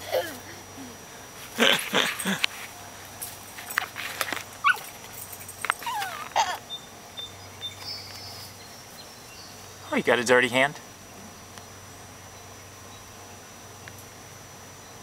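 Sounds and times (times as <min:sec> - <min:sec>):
dog whimpering and yipping: 0:04.6 - 0:04.9, 0:05.7 - 0:06.6.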